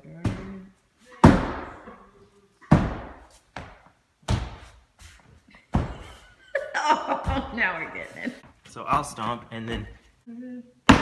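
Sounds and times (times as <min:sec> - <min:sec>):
foot stomps on wooden floor: 0:07.1 - 0:07.7, 0:08.4 - 0:10.0.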